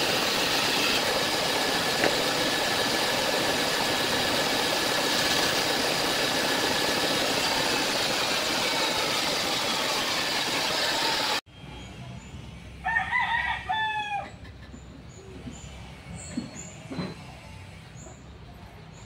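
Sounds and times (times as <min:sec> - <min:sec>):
band saw cutting wood: 0:00.0 - 0:11.4
rooster crowing: 0:12.8 - 0:14.4.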